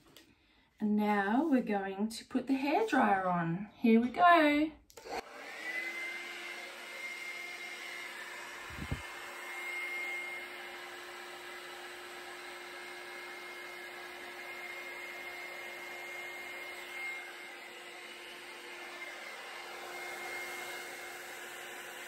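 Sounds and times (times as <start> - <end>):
hair dryer motor whine: 4.9 - 22.0.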